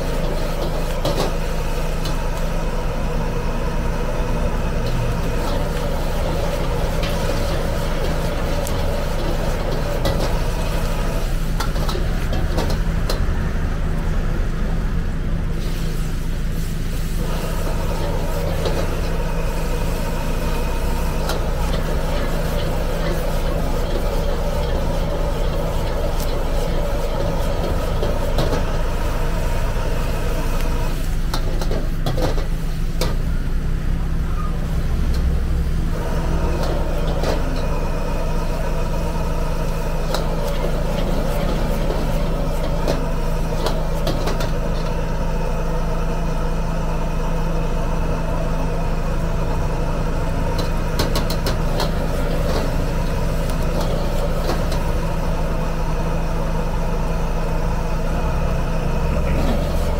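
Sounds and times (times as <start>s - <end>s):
gas burner roaring: 0.0s - 59.9s
metal ladle scraping a wok: 5.2s - 12.8s, 20.8s - 28.9s.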